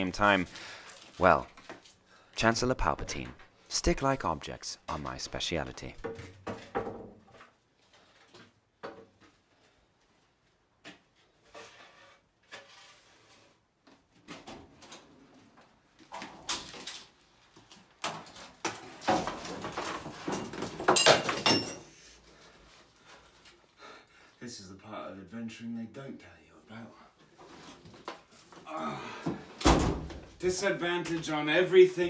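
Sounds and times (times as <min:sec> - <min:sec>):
objects knocking and clattering: 0:05.8 - 0:07.6, 0:08.3 - 0:09.3, 0:17.9 - 0:21.9.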